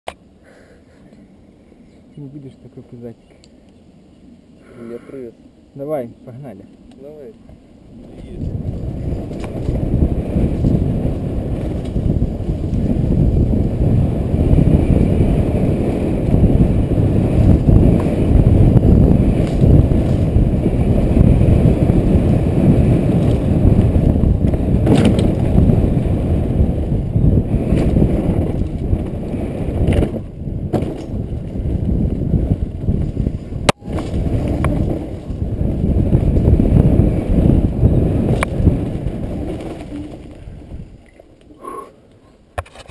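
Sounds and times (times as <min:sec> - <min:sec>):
wind rumble on microphone: 0:05.8 - 0:41.8
tyres rolling over dirt trail: 0:06.0 - 0:42.9
bike knocks and rattles: 0:17.4 - 0:20.5, 0:22.7 - 0:25.9, 0:27.2 - 0:40.6.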